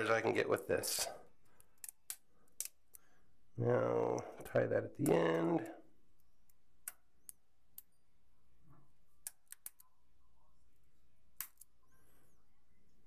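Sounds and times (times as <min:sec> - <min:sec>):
hair elastic clicks and snaps: 0:01.6 - 0:03.0.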